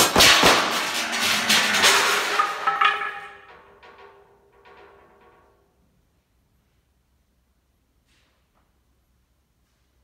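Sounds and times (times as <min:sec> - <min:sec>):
loud percussion hit: 0:00.0 - 0:04.3.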